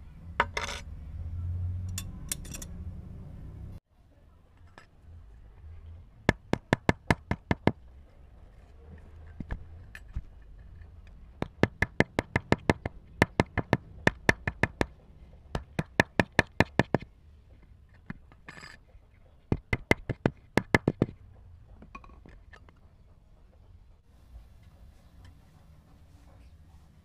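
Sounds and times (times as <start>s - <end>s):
hammer tapping metal disc: 11.4s - 15.0s.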